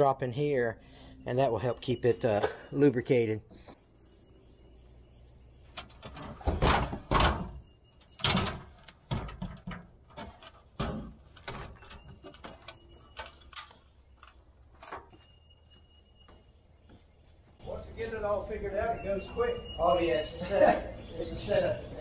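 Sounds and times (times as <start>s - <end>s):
metal ladder clanking against truck bed: 5.8s - 13.8s.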